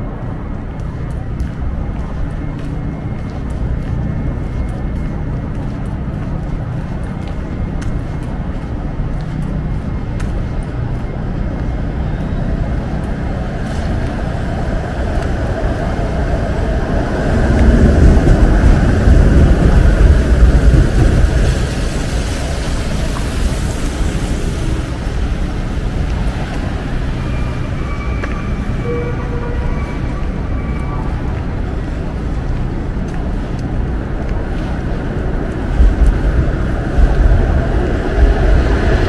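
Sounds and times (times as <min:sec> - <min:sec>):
rumble of passing vehicles: 0:00.0 - 0:39.0.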